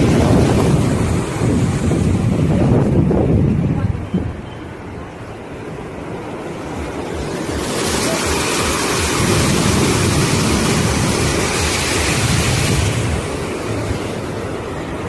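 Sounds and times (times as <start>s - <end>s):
water rushing through sluice gate: 5.0s - 15.0s.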